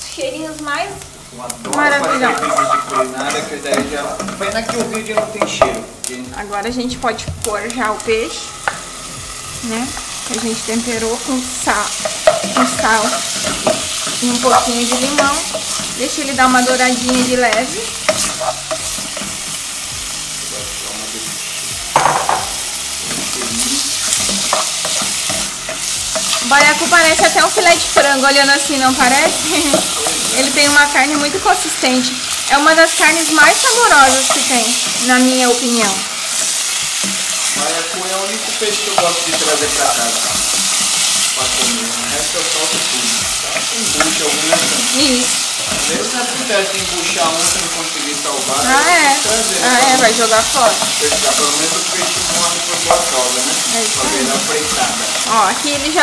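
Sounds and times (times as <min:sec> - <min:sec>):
food sizzling in hot oil: 0:00.0 - 0:56.0
spoon scraping a metal pot: 0:01.9 - 0:03.5, 0:23.9 - 0:28.4
spoon scraping pan bottom: 0:01.9 - 0:05.8.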